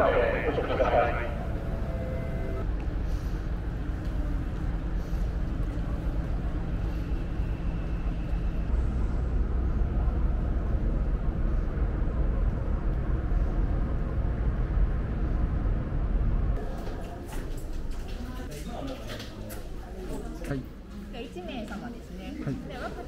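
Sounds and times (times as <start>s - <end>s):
ship machinery droning: 0.0s - 2.7s.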